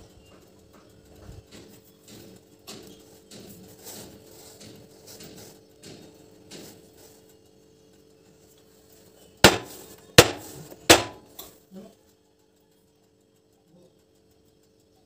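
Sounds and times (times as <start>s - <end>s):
metal cake tin knocking on counter: 9.5s - 11.2s.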